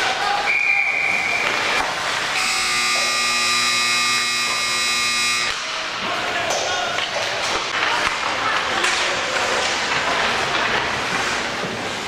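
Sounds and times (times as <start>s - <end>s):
scoreboard buzzer: 2.4s - 5.6s.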